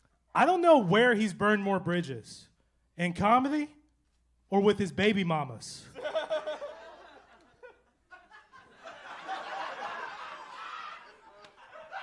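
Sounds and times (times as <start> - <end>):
audience laughing: 6.0 - 12.0.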